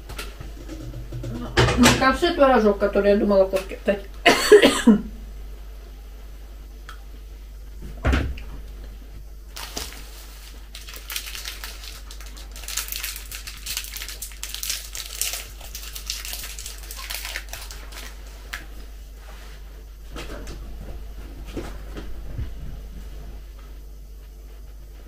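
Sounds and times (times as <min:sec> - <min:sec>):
foil wrapper crinkling: 0:09.5 - 0:18.8.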